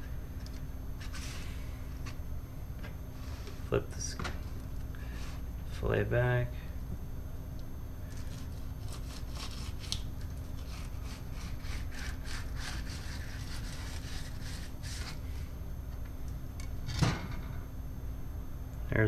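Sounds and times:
knife scraping fish fillet: 8.2 - 10.0, 10.6 - 15.3.

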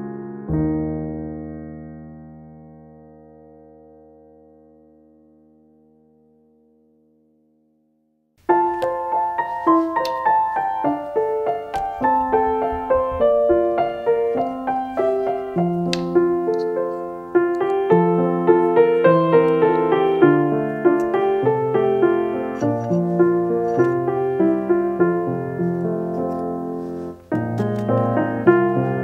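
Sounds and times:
piano music: 0.0 - 7.3, 8.4 - 29.0.

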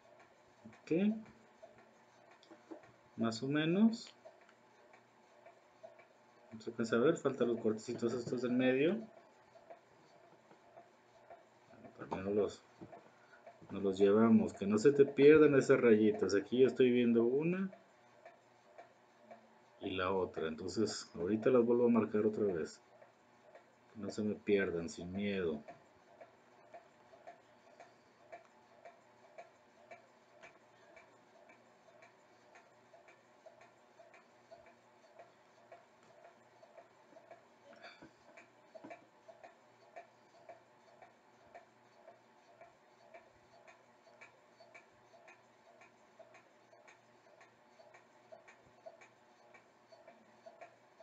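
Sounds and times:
faint ticking: 0.0 - 51.0.

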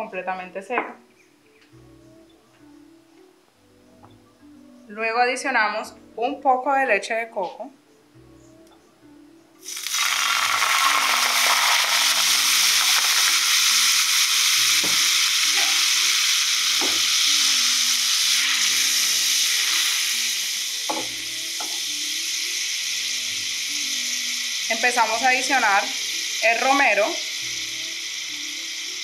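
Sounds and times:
soft background music: 0.0 - 29.0
liquid sizzling in frying pan: 9.6 - 29.0.

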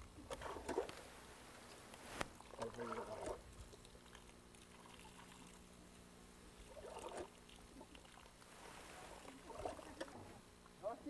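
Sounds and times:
steady low hum: 0.0 - 11.0
faint trickle of water from spout: 2.4 - 5.7.

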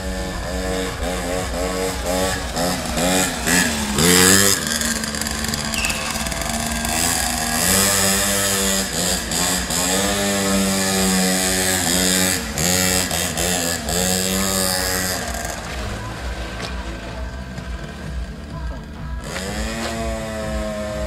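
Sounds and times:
small two-stroke engine revving: 0.0 - 21.0.

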